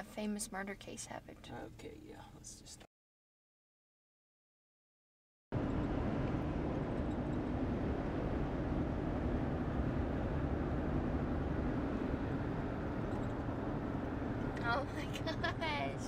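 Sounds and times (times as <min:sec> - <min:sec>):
car road and engine noise: 0:05.5 - 0:16.0.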